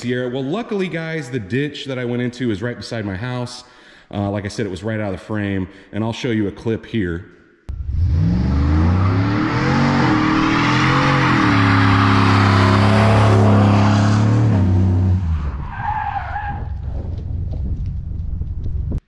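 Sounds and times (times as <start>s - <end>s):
truck engine revving: 7.7s - 15.6s
brakes squealing: 7.7s - 17.1s.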